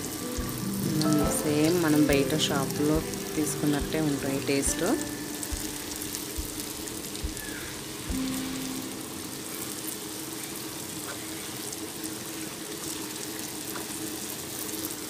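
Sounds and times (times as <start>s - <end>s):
soft background music: 0.0s - 10.3s
batter deep-frying in hot oil: 9.0s - 15.0s.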